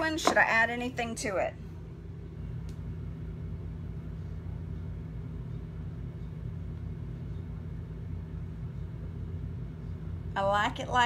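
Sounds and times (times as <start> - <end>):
low hum with faint flutter: 0.0 - 11.0.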